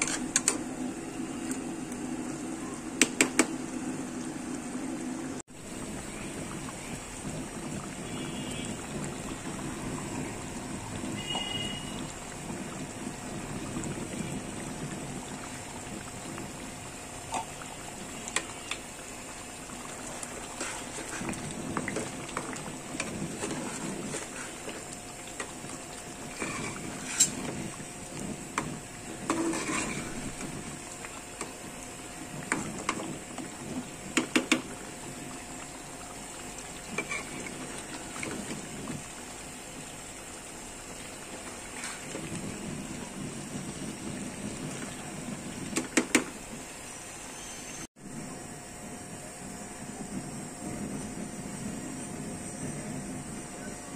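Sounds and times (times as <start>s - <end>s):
faint steady hum: 0.0s - 45.8s
gravy bubbling in pan: 0.0s - 53.9s
spatula knocking pan: 34.1s - 34.7s.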